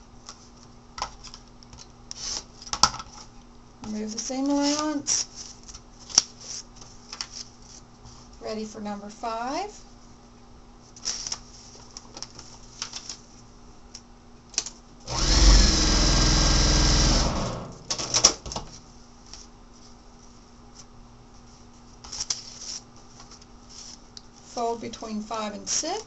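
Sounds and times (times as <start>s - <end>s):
paper and fabric rustling: 4.4s - 8.4s
electric sewing machine stitching: 15.1s - 18.3s.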